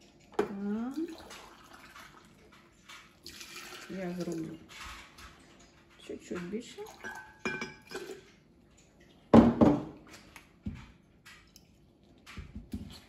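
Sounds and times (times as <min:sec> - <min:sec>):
hot water pouring into cup: 0:00.8 - 0:02.5, 0:03.2 - 0:04.7
kettle and cups knocking on table: 0:09.3 - 0:10.0.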